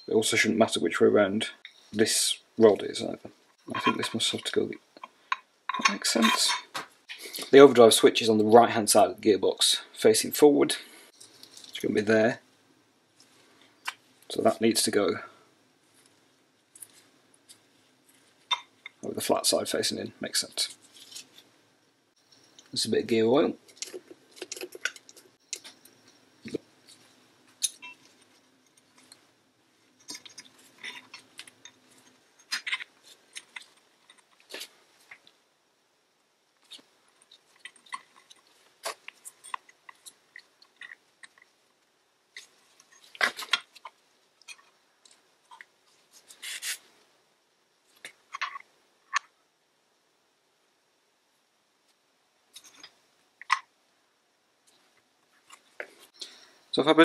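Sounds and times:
small metal clicks and scrapes: 29.9s - 35.4s, 36.6s - 41.6s.

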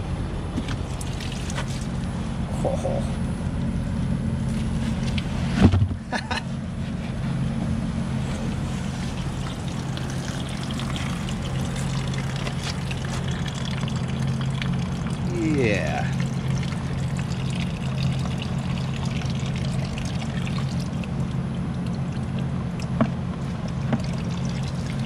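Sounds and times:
low machine hum: 0.0s - 25.0s
faint trickling water: 0.8s - 2.1s, 8.4s - 25.0s.

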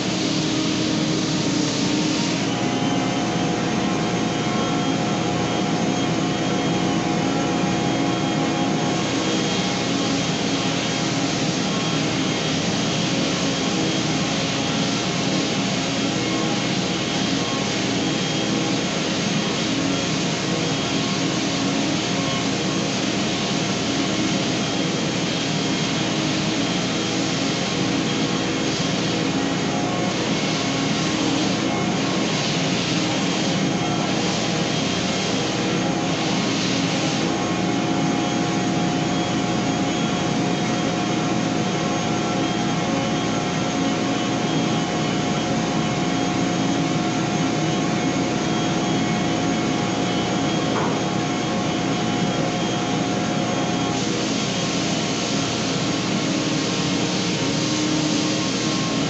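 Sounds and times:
belt sander running: 0.0s - 2.7s
hissing of sanding wood: 9.0s - 37.3s.

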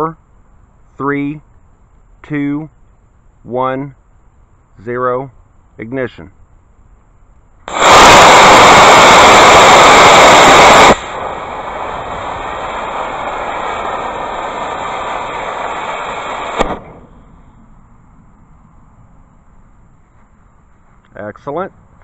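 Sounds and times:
delay charge steady hiss: 0.0s - 22.0s
ejection charge pop: 7.7s - 17.4s
rocket motor rushing hiss: 7.7s - 17.6s.

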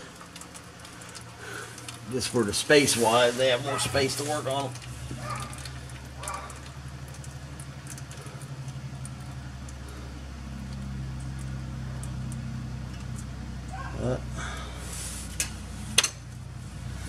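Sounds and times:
low throbbing mechanical hum: 0.0s - 17.0s
faint clicks: 0.2s - 2.0s.

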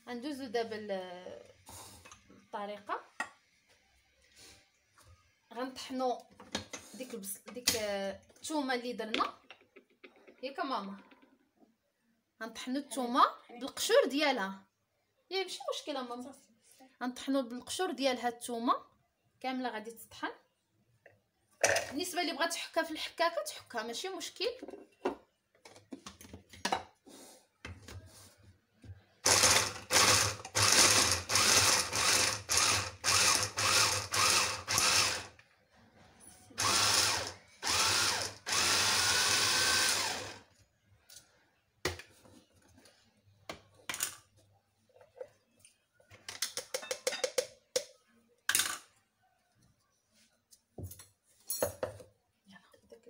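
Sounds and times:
electric mini chopper grinding garlic: 29.3s - 35.3s, 36.6s - 40.4s.

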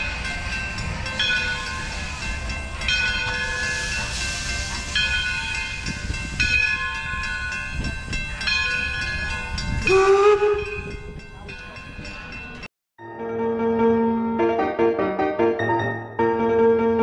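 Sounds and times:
steam locomotive running: 0.0s - 12.7s
steam whistle: 9.8s - 11.0s.

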